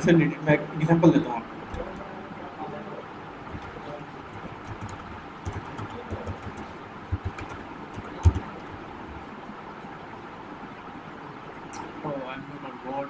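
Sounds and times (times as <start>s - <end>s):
keyboard typing: 1.7s - 2.0s, 3.5s - 9.2s.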